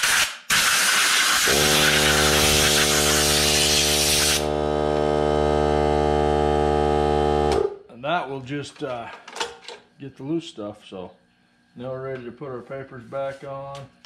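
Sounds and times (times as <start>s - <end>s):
compressed air blasting: 0.0s - 4.5s
air compressor motor humming: 1.3s - 7.7s.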